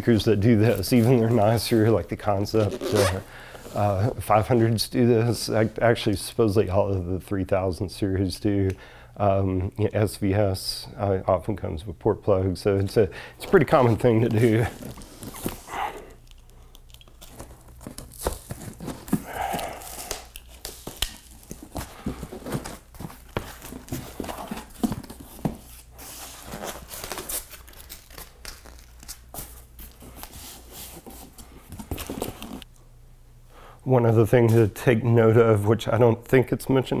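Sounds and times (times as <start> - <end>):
cardboard and plastic rustling: 13.4 - 32.7.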